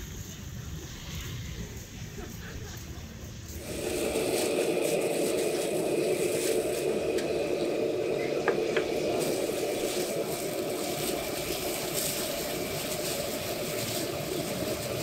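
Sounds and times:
gas stove burner running: 3.5 - 15.0
liquid bubbling in a wok: 3.5 - 15.0.

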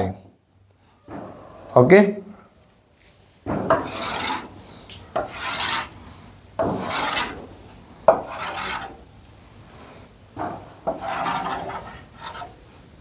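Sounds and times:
chalk scraping on blackboard: 3.7 - 9.1, 9.7 - 12.9
chalk tapping: 10.9 - 12.6.

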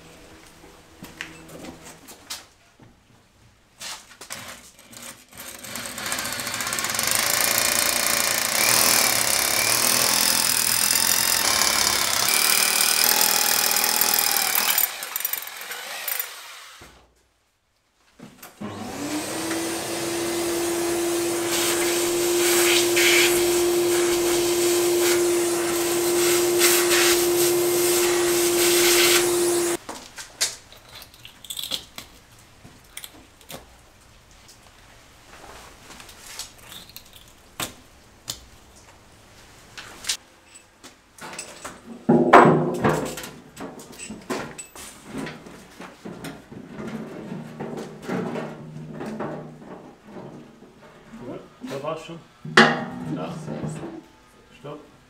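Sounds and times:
power drill boring into masonry: 5.3 - 16.8, 18.7 - 29.8.

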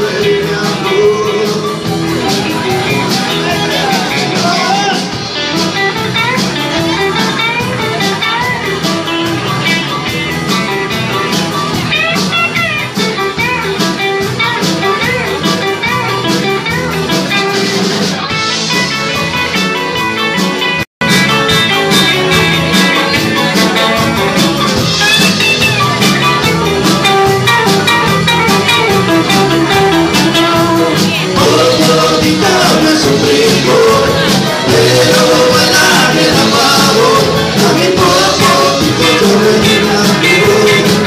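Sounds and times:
man singing into a microphone: 0.0 - 2.1, 30.3 - 41.0
bass guitar: 0.0 - 41.0
drum kit: 0.0 - 41.0
electric guitars: 0.0 - 41.0.

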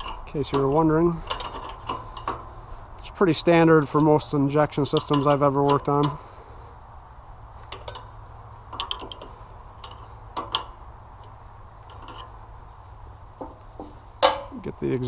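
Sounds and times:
wrench clicking on metal nuts: 4.8 - 6.2, 8.7 - 12.3.

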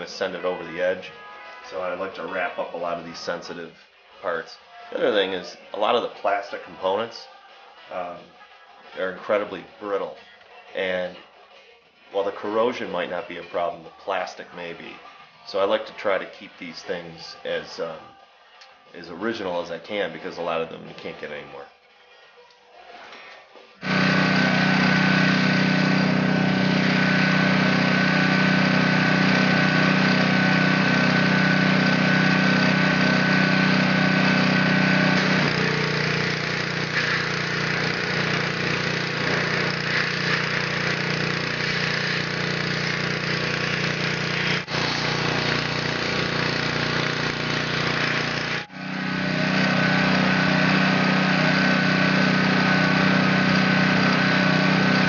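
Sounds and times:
pressure washer motor humming: 23.8 - 55.0.

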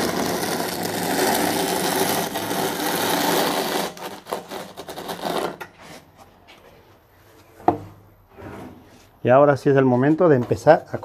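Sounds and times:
trowel scraping adhesive: 0.0 - 6.1.

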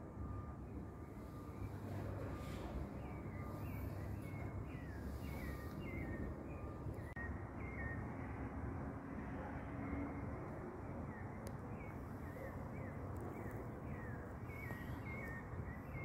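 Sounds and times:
bird chirping: 3.0 - 8.0, 11.1 - 16.0.

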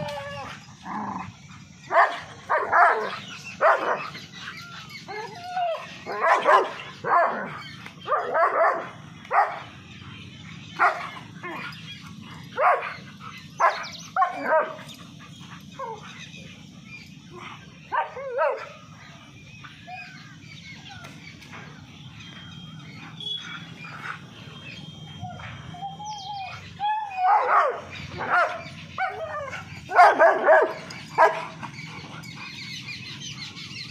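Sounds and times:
dogs barking: 0.6 - 20.8, 22.8 - 33.9.

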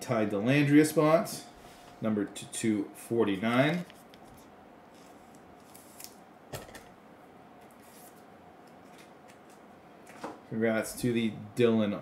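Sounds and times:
trading cards handling: 3.4 - 6.9, 7.6 - 10.2.

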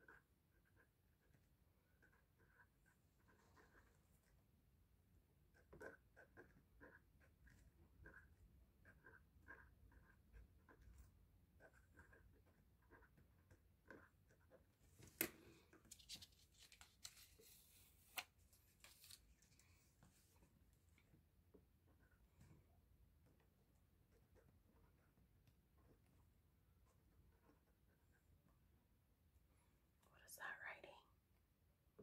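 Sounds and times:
pen scratching on paper: 0.0 - 4.4, 5.4 - 14.8, 24.1 - 25.2, 25.8 - 28.2.

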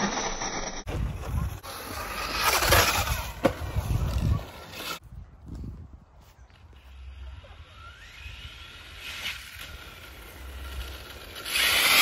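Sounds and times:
radio-controlled buggy motor and tyres: 0.0 - 5.0, 6.6 - 12.0
wind rumble on microphone: 2.6 - 6.8.

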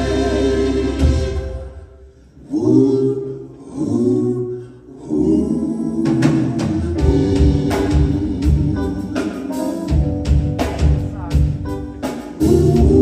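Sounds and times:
soul band playing: 0.0 - 2.1, 6.1 - 13.0.

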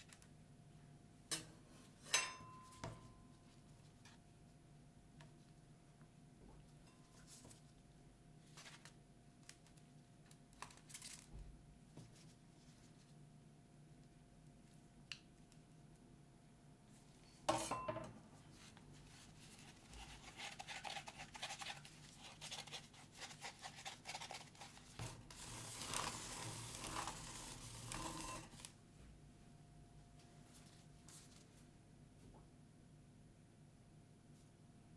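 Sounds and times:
paper cup rubbing and crinkling: 19.1 - 28.7.

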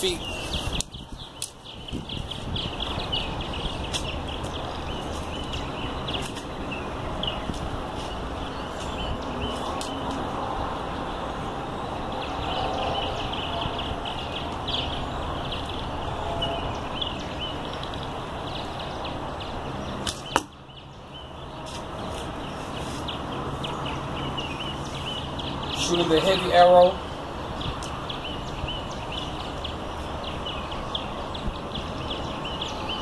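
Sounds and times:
outdoor background noise: 0.0 - 33.0
arrow striking target: 20.0 - 20.6.

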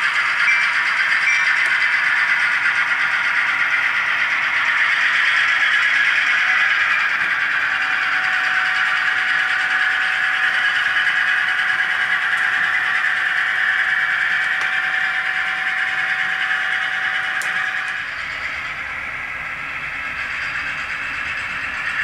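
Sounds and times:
model train cars rolling on track: 0.0 - 22.0.

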